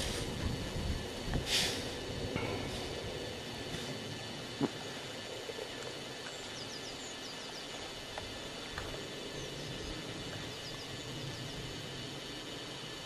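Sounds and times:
steady hiss: 0.0 - 13.0
small birds chirping: 4.6 - 12.1.

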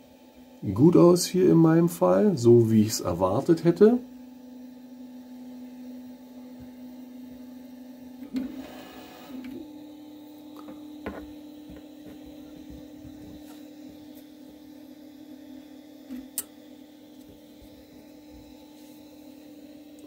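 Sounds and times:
stepper motors whining: 8.2 - 9.7.

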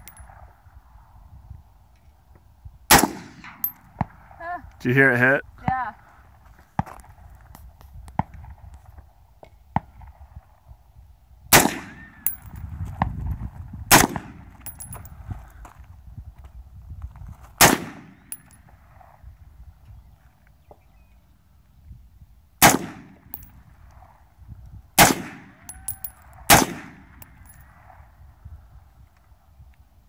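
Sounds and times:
rifle shots with echo: 2.9 - 3.8, 11.5 - 12.4, 13.9 - 14.8, 17.6 - 18.4, 22.6 - 23.5, 25.0 - 27.6.

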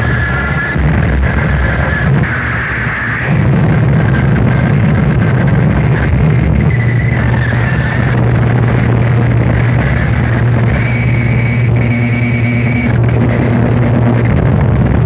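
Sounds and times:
dense distorted noise music: 0.0 - 15.0
steady low hum: 0.0 - 15.0
thin high whine: 0.0 - 15.0.

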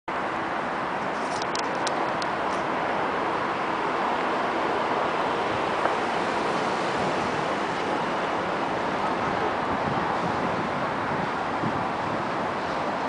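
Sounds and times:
jet engines roaring: 0.3 - 13.0.

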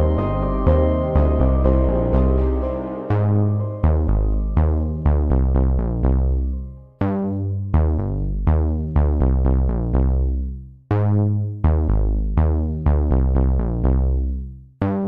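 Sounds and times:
electronic synthesizer music: 0.0 - 7.2.

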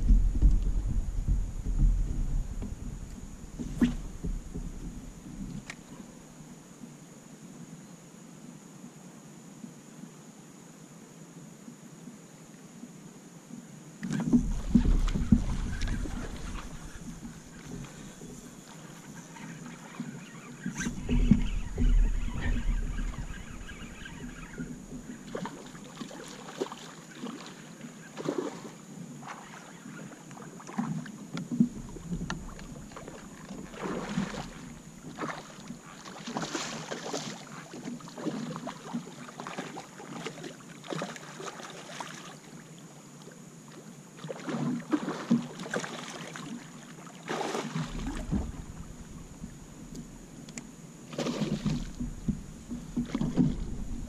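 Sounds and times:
knocks on plastic kayak hull: 0.0 - 5.2
low bumps: 0.0 - 6.0, 14.2 - 19.2, 20.6 - 25.6, 31.6 - 35.2, 47.9 - 50.4, 51.3 - 54.0.

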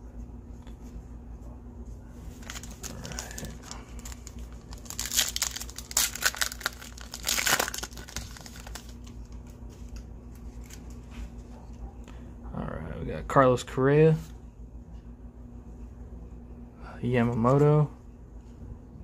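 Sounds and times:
card pack wrapper crinkling: 2.3 - 11.0.

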